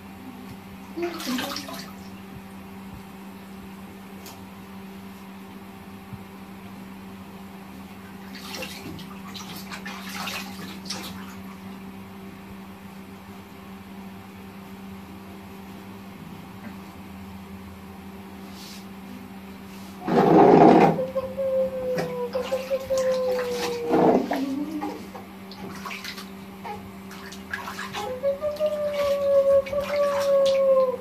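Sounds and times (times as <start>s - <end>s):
steady low hum: 0.0s - 31.0s
water splashing in bathtub: 0.8s - 2.4s, 8.0s - 11.8s, 20.0s - 31.0s.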